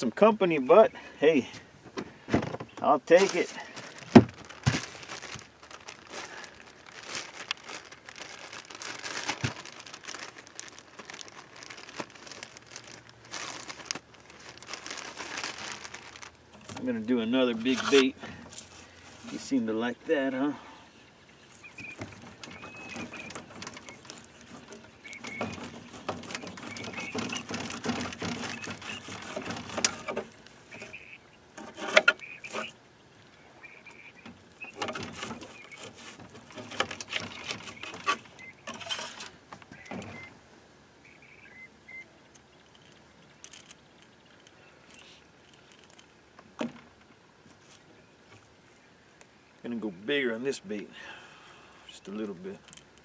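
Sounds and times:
rustling and clicks of handling tackle: 0:01.0 - 0:20.0, 0:21.5 - 0:40.4, 0:42.3 - 0:49.7, 0:52.1 - 0:53.0.

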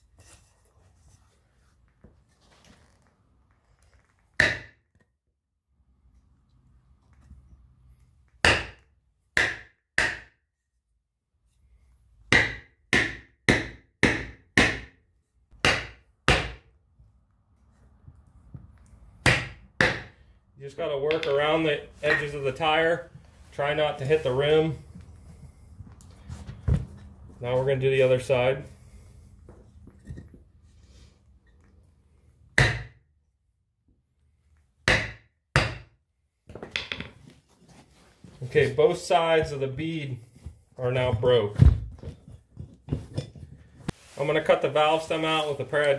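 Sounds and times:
hammer striking wooden block: 0:04.4 - 0:05.0, 0:08.4 - 0:10.4, 0:12.3 - 0:16.7, 0:19.2 - 0:20.2, 0:21.1 - 0:21.4, 0:32.6 - 0:33.0, 0:34.8 - 0:37.2
hammer knocking on wooden block: 0:12.3 - 0:15.0.

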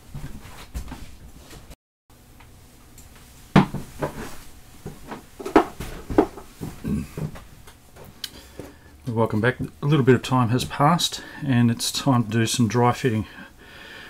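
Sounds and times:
objects clunking on workbench: 0:03.6 - 0:08.7.

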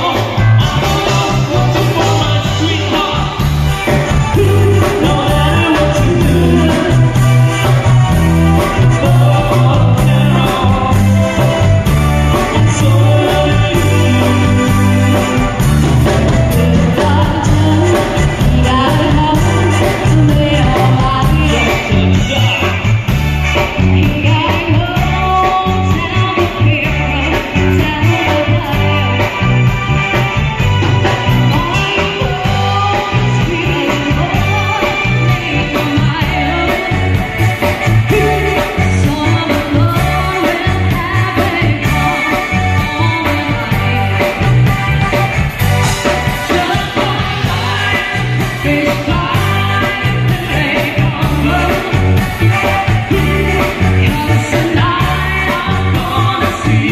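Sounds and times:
live band playing through speakers: 0:00.0 - 0:56.9
person singing: 0:00.0 - 0:56.9.

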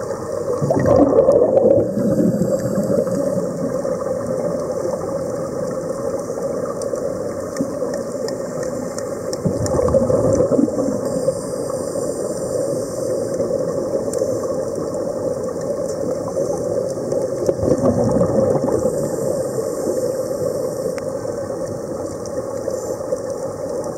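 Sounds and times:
muffled underwater drone: 0:00.0 - 0:23.9.

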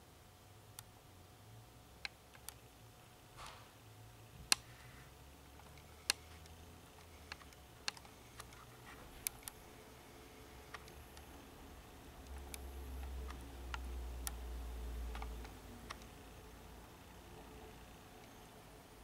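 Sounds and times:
sharp little clicks: 0:05.6 - 0:09.6, 0:15.0 - 0:16.2.

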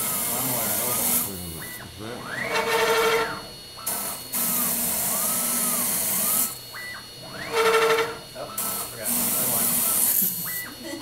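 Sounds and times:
router motor whining: 0:00.0 - 0:11.0
spindle cutting hiss: 0:07.4 - 0:10.7.

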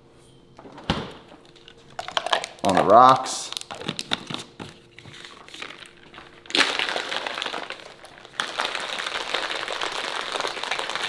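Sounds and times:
ice rattling in shaker bottle: 0:02.0 - 0:04.4, 0:05.4 - 0:11.0.

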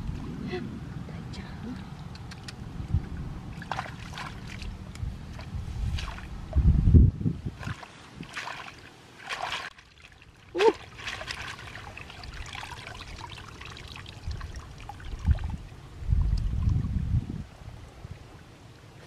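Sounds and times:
water trickling and splashing: 0:01.3 - 0:06.8, 0:07.4 - 0:18.0
leaves rustling: 0:07.5 - 0:15.6.

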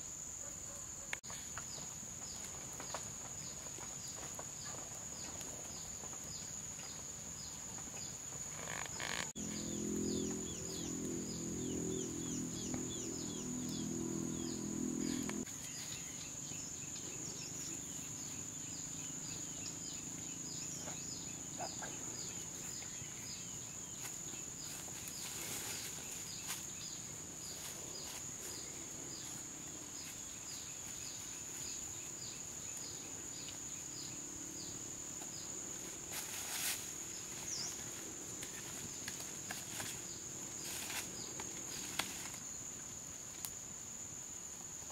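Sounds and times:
high-pitched insect drone: 0:08.5 - 0:42.6
low hum: 0:09.4 - 0:15.5
rustling: 0:24.0 - 0:26.8, 0:35.8 - 0:42.5.

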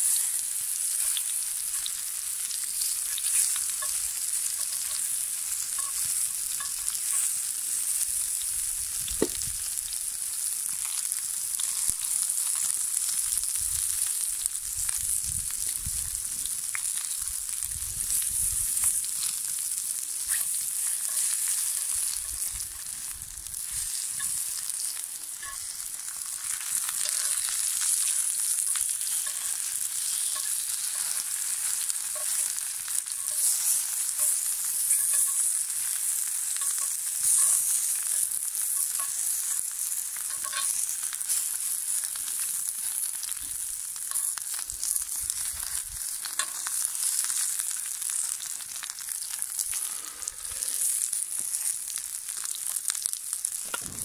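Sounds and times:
sausage sizzling in a skillet: 0:00.0 - 0:54.0
small ticks and pops: 0:08.3 - 0:09.8, 0:10.7 - 0:30.6.

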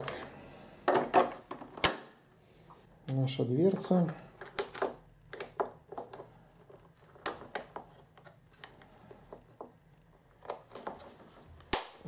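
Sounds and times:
plastic clicks and knocks: 0:04.4 - 0:06.3.

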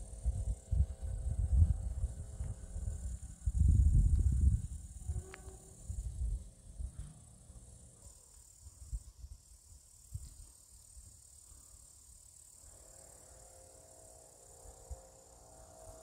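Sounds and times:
faint droning hum: 0:00.0 - 0:16.0
insects chirring: 0:00.0 - 0:16.0.

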